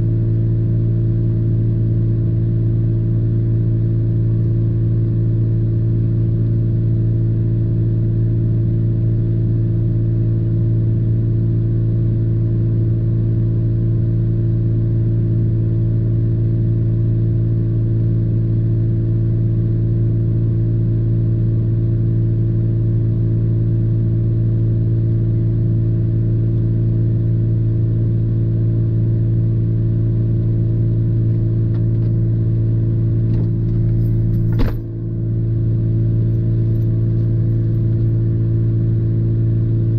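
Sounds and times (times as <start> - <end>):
car door thud: 33.3 - 35.0.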